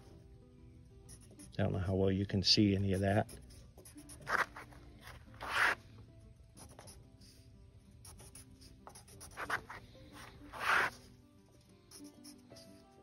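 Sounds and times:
pencil scratching on wood: 3.0 - 5.8, 8.0 - 11.1, 11.9 - 13.0.

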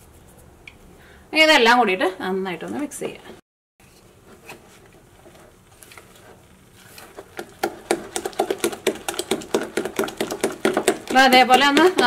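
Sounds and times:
spatula beating batter in bowl: 7.0 - 12.0.

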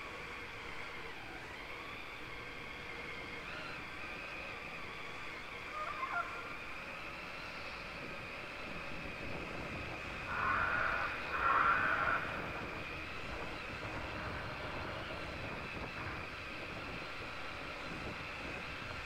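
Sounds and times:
low rumble of tyres: 0.0 - 19.0
electric motor whining: 6.3 - 19.0.

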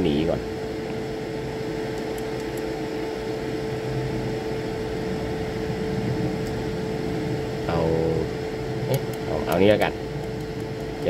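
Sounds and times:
machine hum: 0.0 - 11.0
low rumble: 3.4 - 10.3.

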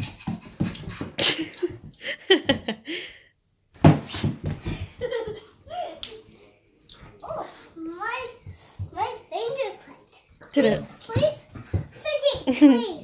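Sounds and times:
footsteps on laminate floor: 0.0 - 2.8, 3.8 - 5.4, 8.2 - 9.6, 10.6 - 13.0.

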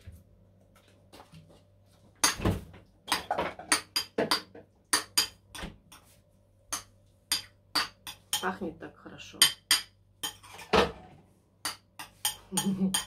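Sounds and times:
metal spoon scraping ceramic bowl: 9.4 - 11.0, 12.0 - 13.0.

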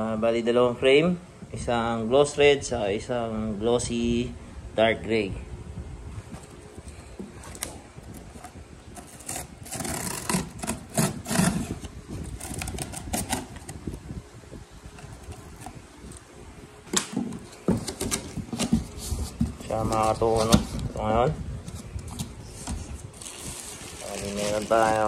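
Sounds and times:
cardboard and plastic rustling: 6.2 - 14.0, 14.9 - 25.0.

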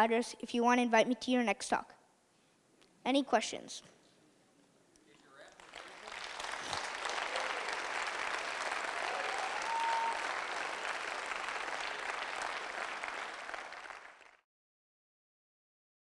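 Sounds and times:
audience applauding: 5.4 - 14.4.

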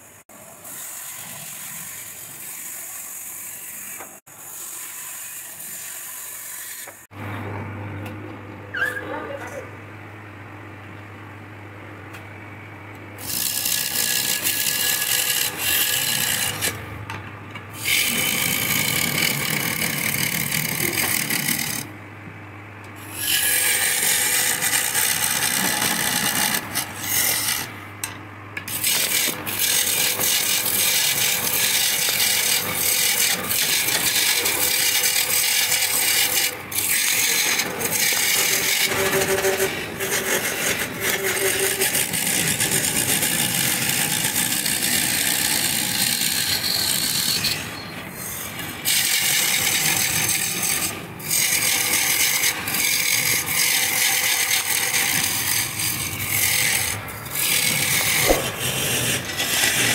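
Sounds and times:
chisel scraping spinning wood: 13.2 - 16.8, 17.8 - 21.9, 23.1 - 59.9
lathe motor hum: 13.2 - 16.8, 23.2 - 59.9.

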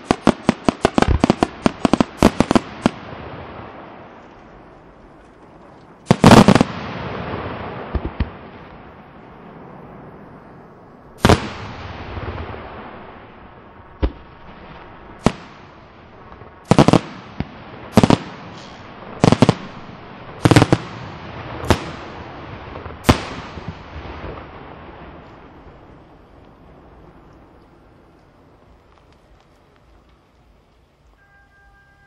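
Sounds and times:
firework shells bursting: 0.0 - 3.1, 5.2 - 7.0, 15.2 - 23.9.

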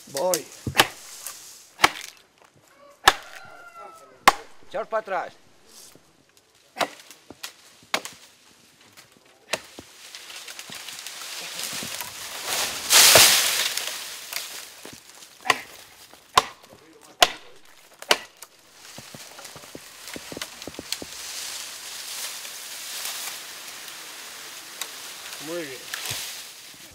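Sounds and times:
axe chopping branch: 0.2 - 2.2, 3.0 - 3.6, 4.2 - 4.8, 6.8 - 8.3, 9.5 - 11.1, 11.7 - 21.2, 24.8 - 26.4.

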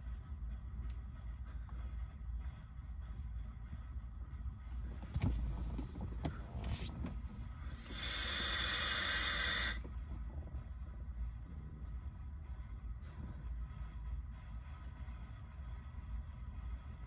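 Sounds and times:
breathy hiss of vape puff: 7.5 - 10.0.

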